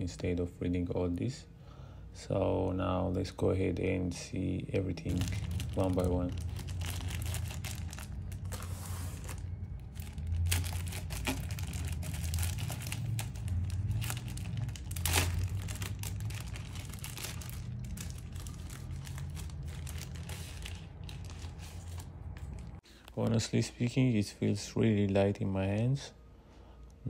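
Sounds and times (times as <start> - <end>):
low hum: 4.5 - 23.0
packaging wrap crackling: 5.0 - 22.8.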